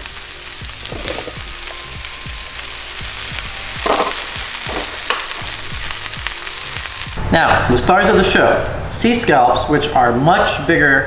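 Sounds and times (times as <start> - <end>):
mushrooms sizzling in oil: 0.0 - 7.2
oil popping: 0.7 - 1.8, 3.4 - 6.4.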